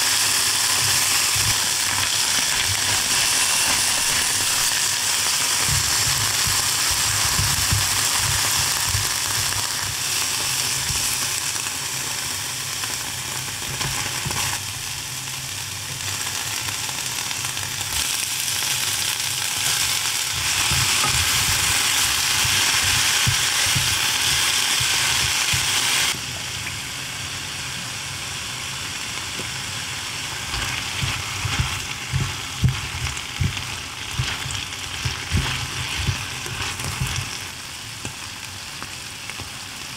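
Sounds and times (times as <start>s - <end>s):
food sizzling in hot oil: 0.0s - 39.9s.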